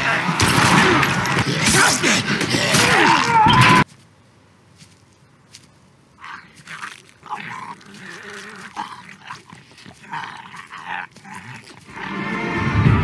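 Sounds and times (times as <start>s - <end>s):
zombies growling and snarling: 0.0s - 3.5s, 6.2s - 12.5s.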